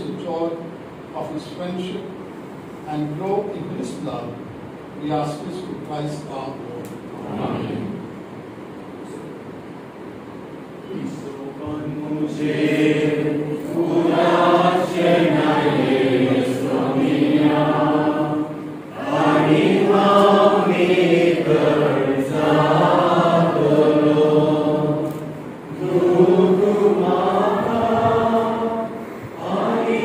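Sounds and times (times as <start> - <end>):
group singing a hymn: 7.2 - 8.1, 11.6 - 30.0.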